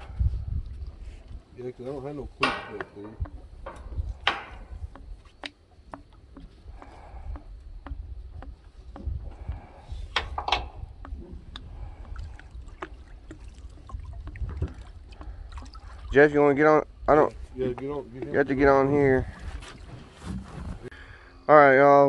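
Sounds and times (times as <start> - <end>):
water sloshing and splashing: 0.0 - 20.9
strap knocking on metal frame: 2.4 - 6.6, 7.3 - 9.2.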